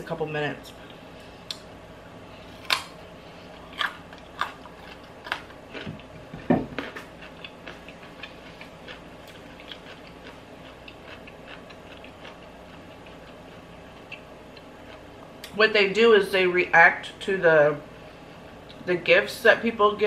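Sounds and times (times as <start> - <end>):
carrot being bitten and chewed: 2.4 - 3.0, 3.6 - 15.5.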